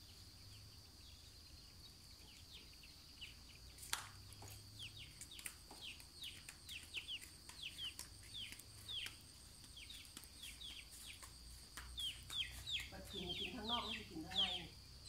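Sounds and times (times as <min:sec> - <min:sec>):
faint high-pitched hum: 0:00.0 - 0:15.0
chicks peeping: 0:00.8 - 0:14.7.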